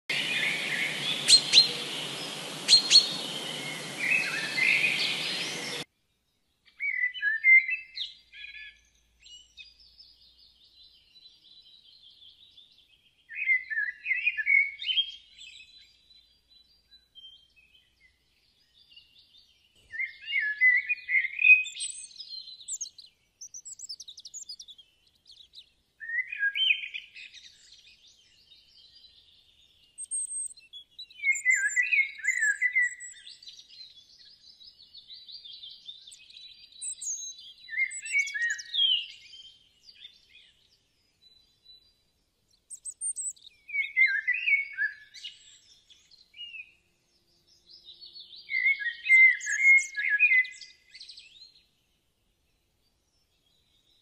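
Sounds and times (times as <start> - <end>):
small birds chirping: 0.0 - 54.0
steady hiss: 0.1 - 5.8.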